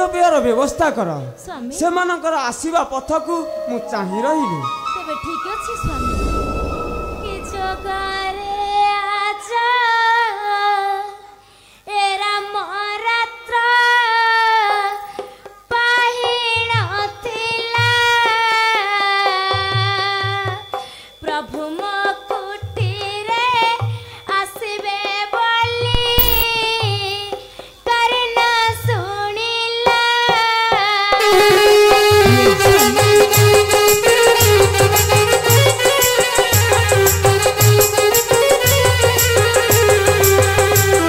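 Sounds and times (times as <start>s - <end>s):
woman singing: 7.5s - 15.1s, 15.7s - 25.9s, 26.5s - 31.7s.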